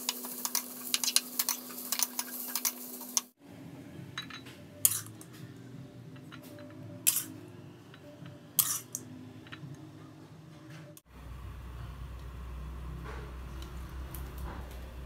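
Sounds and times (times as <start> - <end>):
kitchenware clinking: 4.2 - 5.4, 6.1 - 9.8.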